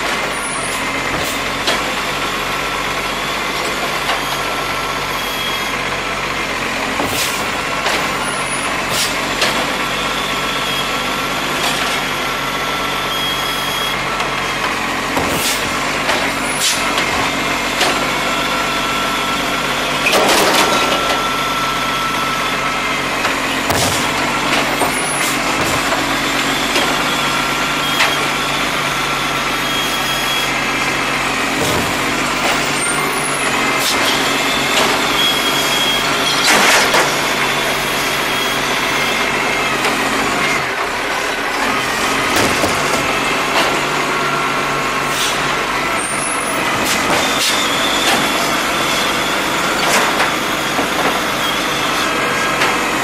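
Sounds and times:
garbage truck engine running: 0.0 - 53.0
hydraulic whine: 0.0 - 53.0
bins knocking and clattering: 15.1 - 18.0, 23.7 - 27.0, 31.5 - 32.8, 42.3 - 43.7.

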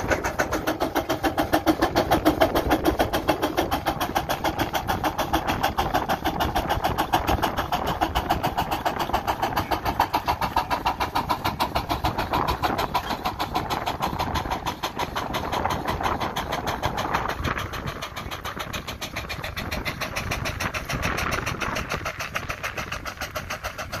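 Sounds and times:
steam engine exhaust chuffing: 0.0 - 24.0.

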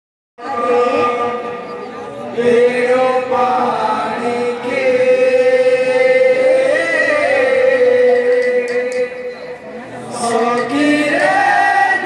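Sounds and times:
women singing a chant: 10.0 - 12.0.

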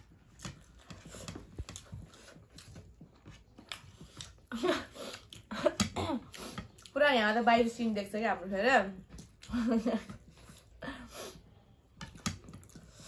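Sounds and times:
chewing and biting food: 0.0 - 4.5.

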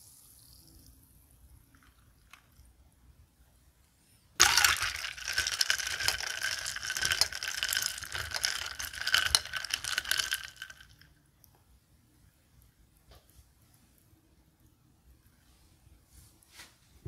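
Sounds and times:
spoon stirring ice in a glass: 4.4 - 11.0.

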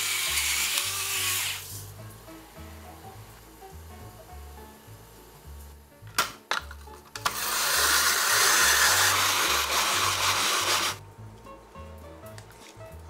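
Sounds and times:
potato grater scraping: 0.0 - 1.8, 7.3 - 11.0.

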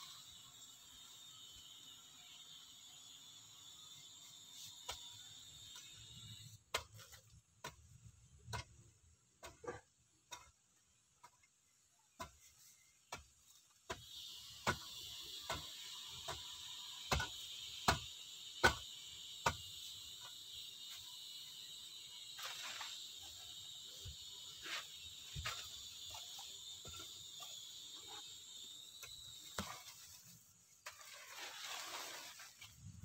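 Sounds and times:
high insect buzz: 14.1 - 32.9
digging stick striking hard earth: 17.1 - 18.8.

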